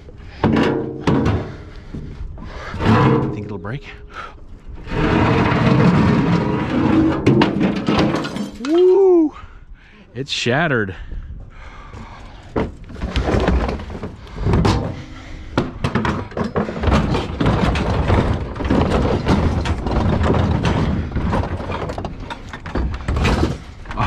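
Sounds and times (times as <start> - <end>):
scrap metal clanging: 2.6 - 4.2, 4.8 - 8.8.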